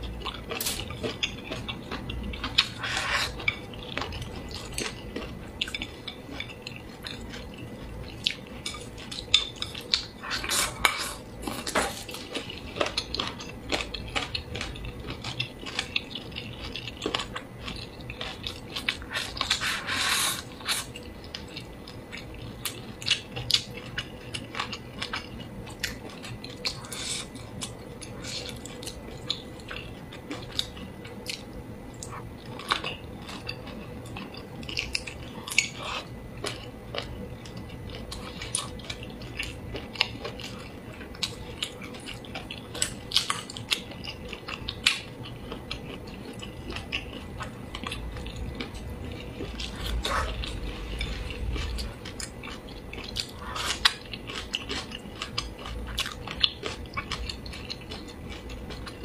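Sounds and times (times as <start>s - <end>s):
chewing: 0.0s - 59.0s
wet sucking slurps: 2.6s - 3.4s, 19.0s - 20.8s.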